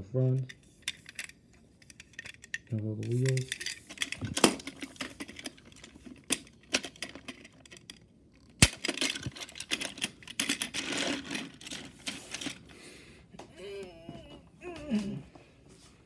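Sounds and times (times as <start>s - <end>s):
plastic toy train clicking: 0.4s - 12.7s.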